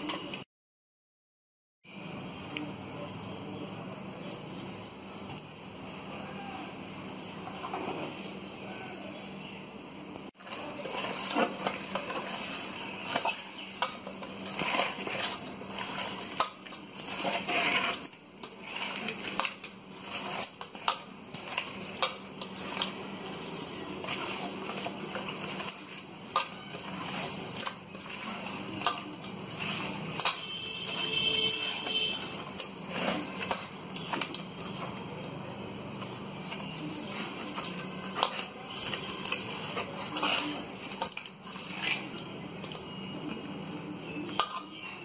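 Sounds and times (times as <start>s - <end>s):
knocks and scrapes against bowl: 10.4s - 43.4s, 44.1s - 45.0s.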